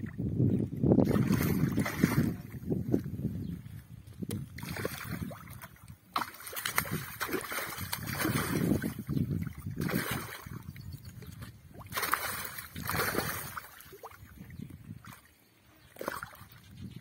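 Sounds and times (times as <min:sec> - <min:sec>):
fish splashing in water: 0:01.0 - 0:02.5, 0:04.6 - 0:10.7, 0:11.7 - 0:14.3, 0:15.9 - 0:16.5.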